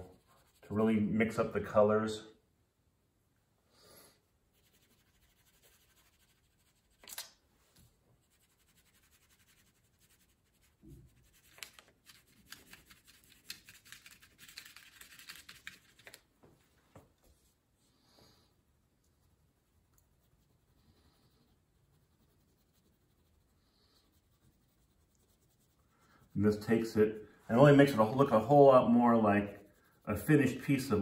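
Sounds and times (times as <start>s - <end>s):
crayon scratching on paper: 0.0s - 0.7s, 4.5s - 7.1s, 8.2s - 16.0s, 20.0s - 27.0s, 27.6s - 31.0s.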